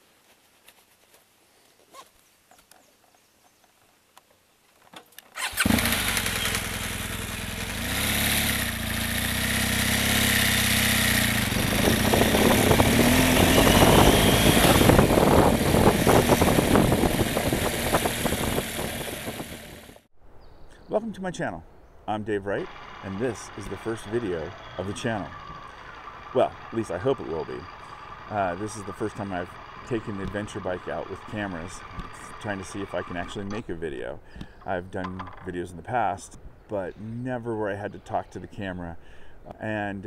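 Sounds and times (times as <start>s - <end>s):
motorcycle engine starting and revving: 5.2s - 20.1s, 22.4s - 33.7s
knocks and rattles from rough road: 8.8s - 20.0s, 22.7s - 33.6s, 35.0s - 35.5s.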